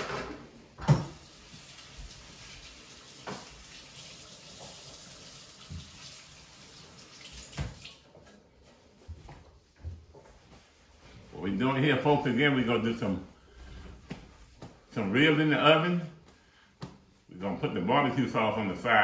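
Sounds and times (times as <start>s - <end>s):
faucet running: 1.1s - 8.0s.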